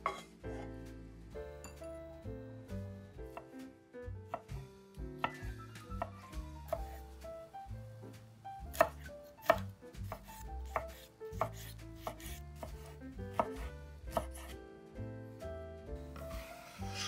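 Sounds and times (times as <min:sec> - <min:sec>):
background music: 0:00.0 - 0:17.0
knife chopping on cutting board: 0:05.2 - 0:07.3, 0:08.6 - 0:14.6.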